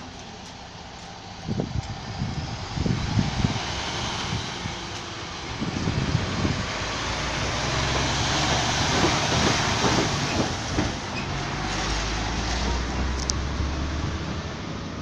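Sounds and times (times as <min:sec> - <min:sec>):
lorry diesel engine running: 0:00.0 - 0:15.0
tyres knocking over rails: 0:07.6 - 0:11.5.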